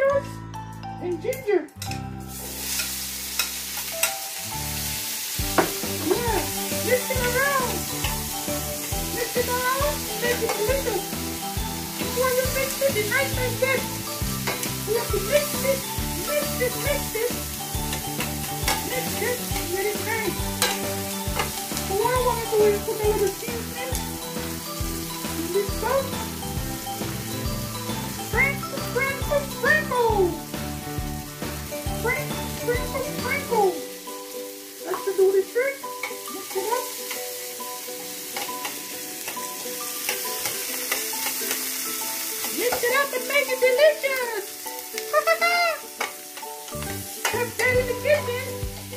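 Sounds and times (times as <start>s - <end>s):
background music: 0.0s - 48.9s
vegetables sizzling in skillet: 2.2s - 48.9s
metal tongs clicking on pan: 2.8s - 4.2s, 14.4s - 14.7s, 20.6s - 21.8s, 36.0s - 37.3s, 38.3s - 41.7s, 45.9s - 48.0s.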